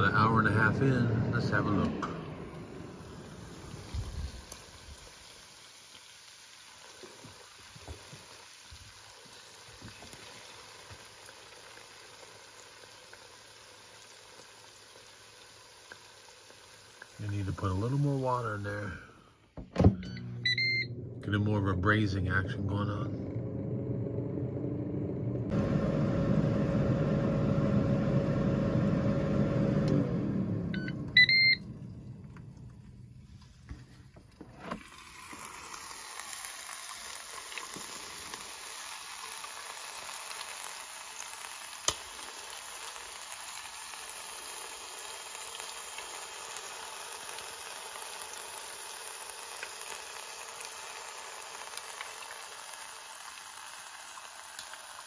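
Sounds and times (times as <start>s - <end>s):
air fryer fan humming: 0.0s - 5.6s, 13.9s - 55.0s
ribs sizzling in a pot: 2.8s - 19.0s, 34.8s - 55.0s
short beep: 30.7s - 31.7s.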